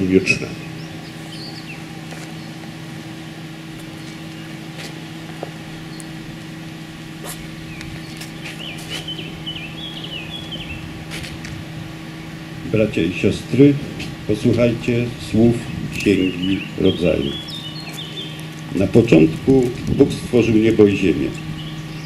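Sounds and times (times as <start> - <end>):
steady low hum: 0.0 - 22.0
small bird chirping: 0.6 - 2.6, 5.8 - 6.2, 7.2 - 10.9, 15.5 - 18.8, 21.3 - 22.0.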